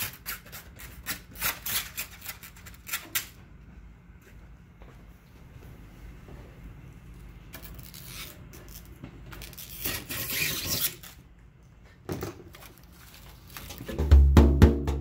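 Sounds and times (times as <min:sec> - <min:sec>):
hands rubbing plastic film: 0:12.6 - 0:14.0.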